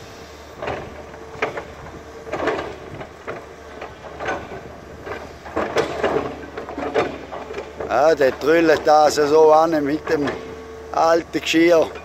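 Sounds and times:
excavator engine humming: 0.0 - 12.0.

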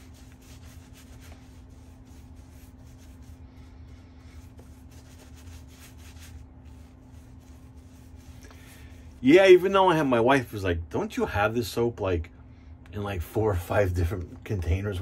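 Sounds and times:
shaving brush rubbing strokes: 0.0 - 9.6
steady low hum: 0.0 - 15.0.

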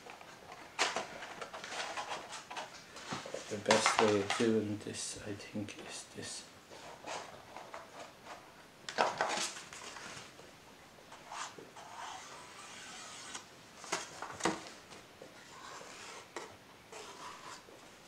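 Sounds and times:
marker pen scratching on plastic: 11.2 - 13.4, 15.5 - 17.7
plastic scraping against paper: 15.4 - 17.7.

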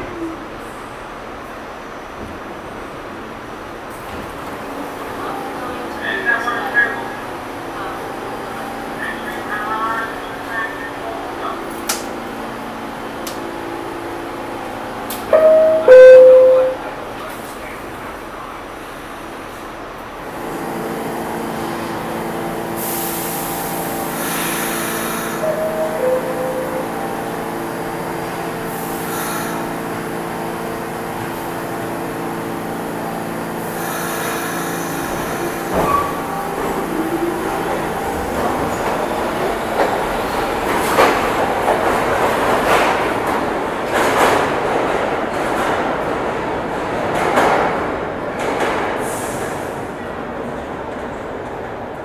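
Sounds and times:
steady hum of subway car: 0.0 - 52.0
two-tone descending door chime: 15.3 - 16.9, 25.4 - 27.2
air hissing: 22.8 - 25.9.

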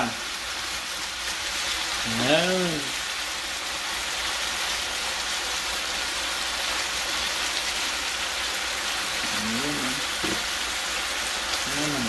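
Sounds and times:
beef sizzling in frying pan: 0.0 - 12.0.

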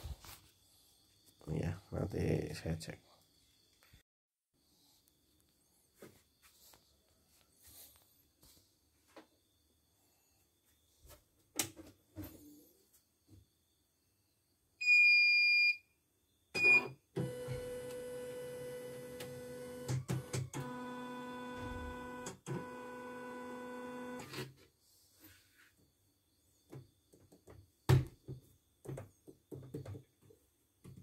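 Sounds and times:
embroidery machine electric whine: 17.2 - 24.3.

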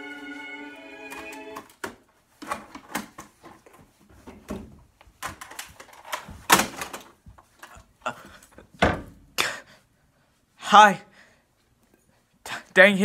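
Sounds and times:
rustling of handled things: 1.2 - 8.8.

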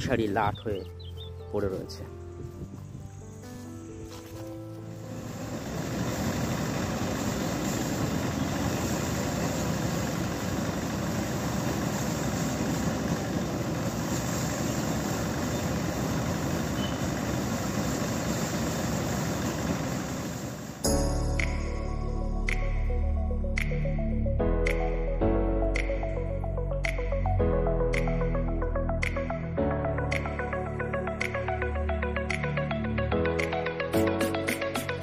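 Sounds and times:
paddy thresher engine running: 4.1 - 20.8.

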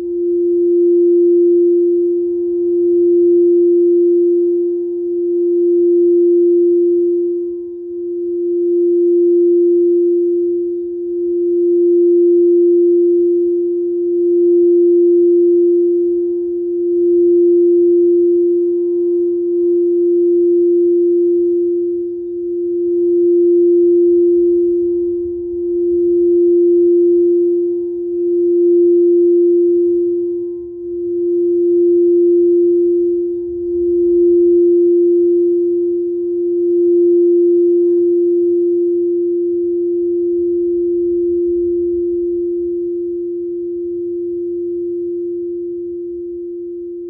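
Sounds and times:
singing bowl ringing: 0.0 - 47.0.

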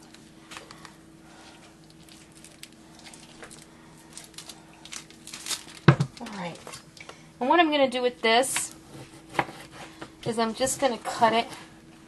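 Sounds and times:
low steady hum: 0.0 - 12.0
plastic wrapper rustling and clicking: 1.8 - 7.1.

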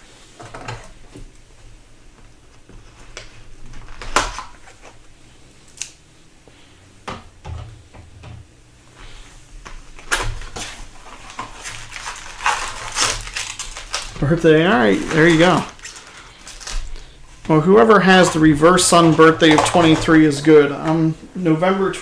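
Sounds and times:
plastic wrapper tearing: 3.7 - 5.0, 10.0 - 17.1
card packs crackling: 9.8 - 22.0.

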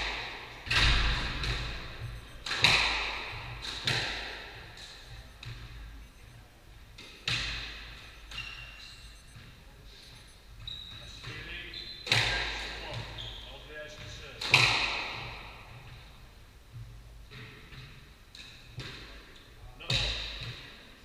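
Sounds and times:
squash ball smacks: 2.4 - 5.6, 14.4 - 15.6.

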